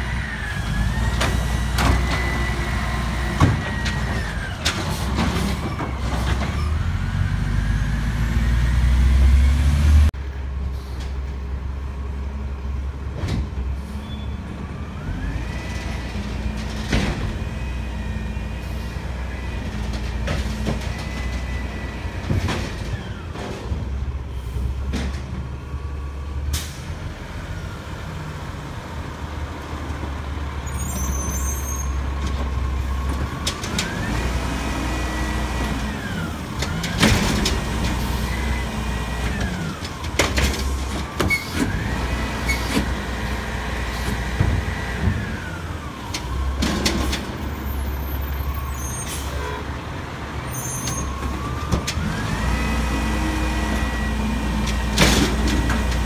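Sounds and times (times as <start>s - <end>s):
garbage truck engine revving: 32.0s - 48.0s, 51.1s - 56.0s.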